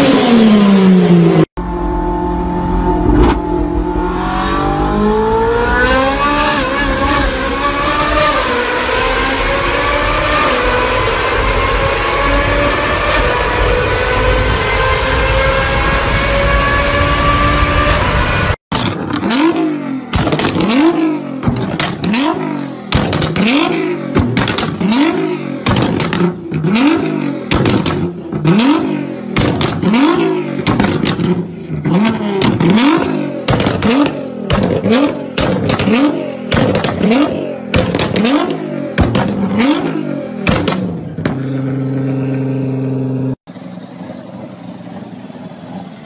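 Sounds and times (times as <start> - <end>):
car engine accelerating in a tunnel: 0.0 - 46.0
car engine revving at standstill: 0.0 - 46.0
exhaust cracks: 18.7 - 42.4.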